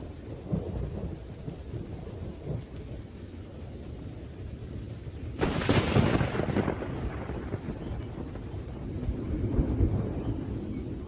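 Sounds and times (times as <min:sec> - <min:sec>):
low rumble of thunder: 0:00.0 - 0:11.0
rain falling: 0:00.0 - 0:11.0
loud thunderclap: 0:05.4 - 0:11.0.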